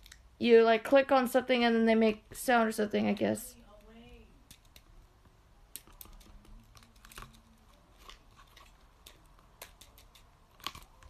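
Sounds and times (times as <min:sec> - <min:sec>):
plastic packaging crinkling: 0:05.8 - 0:11.0.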